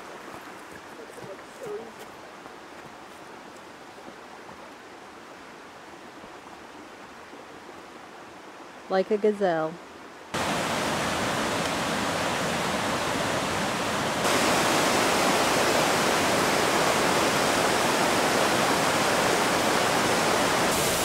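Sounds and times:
waterfall rushing: 10.3s - 21.0s.

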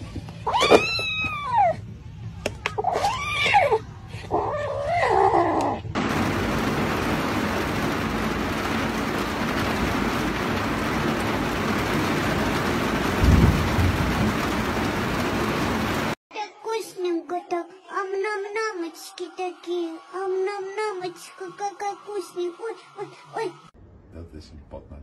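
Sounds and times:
kitten crying: 0.5s - 1.8s
heavy rain pouring: 6.0s - 16.2s
low thunder rumble: 6.0s - 16.2s.

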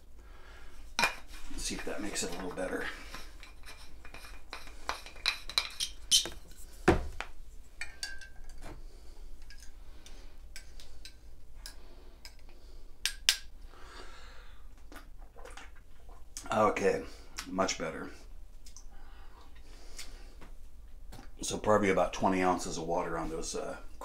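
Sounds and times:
spoon clinking against ceramic mug: 7.8s - 8.5s.

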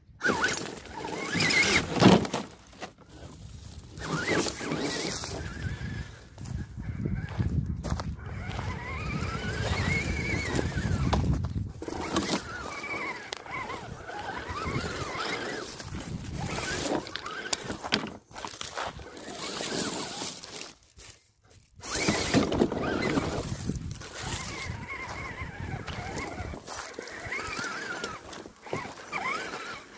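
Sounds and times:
electric motor whining: 0.2s - 21.1s, 21.8s - 29.9s
clicks and scrapes on rock: 10.6s - 21.2s.

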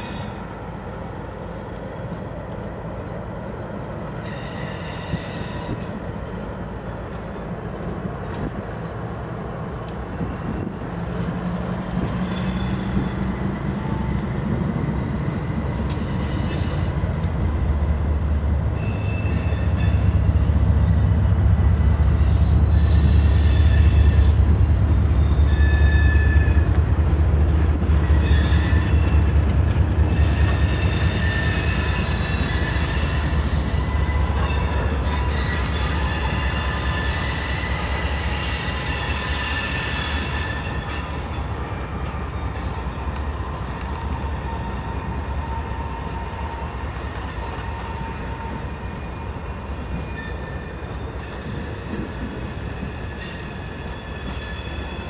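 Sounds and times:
freight train rumbling past: 0.0s - 55.0s
high-pitched wheel squeals: 12.1s - 13.4s, 21.8s - 26.8s, 27.9s - 43.0s.

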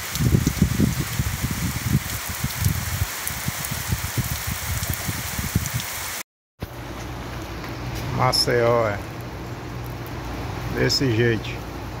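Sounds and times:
heavy rain pouring: 0.0s - 6.2s
rain on paved street: 0.0s - 12.0s.

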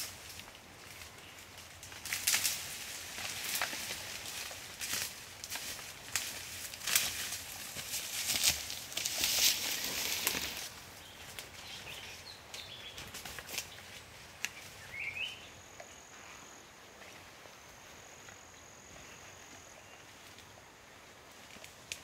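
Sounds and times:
rustling and crackling: 0.0s - 14.7s
rising bird chirp: 14.7s - 16.1s.

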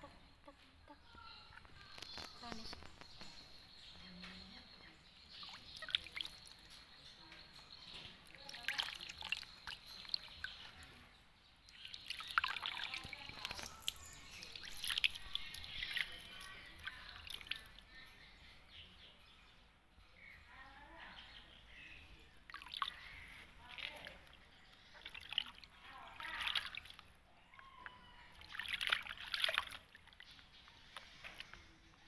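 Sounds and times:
water splashing in a plastic basin: 5.2s - 7.1s, 7.7s - 18.0s, 22.4s - 31.7s.

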